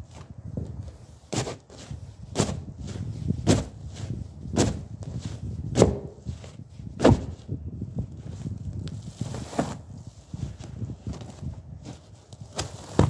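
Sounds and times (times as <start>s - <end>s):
shoe stomping on spring cushion: 5.7s - 6.2s, 7.0s - 7.4s.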